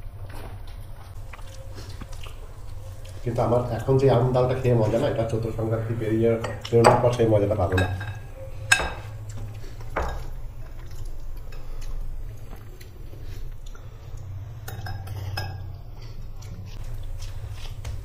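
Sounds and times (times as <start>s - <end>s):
low steady hum: 0.0s - 18.0s
spoon clinking against glass bowl: 6.4s - 9.2s.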